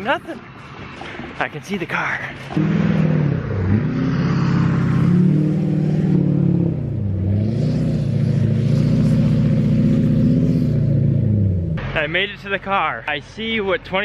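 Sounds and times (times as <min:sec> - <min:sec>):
truck engine revving: 0:02.5 - 0:12.0.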